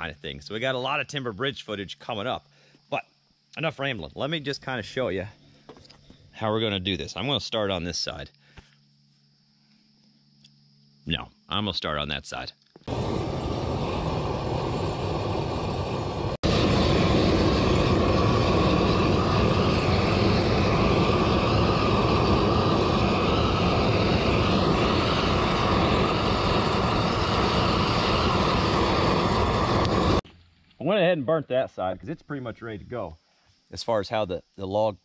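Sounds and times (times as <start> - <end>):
propane torch flame roaring: 12.8 - 30.2.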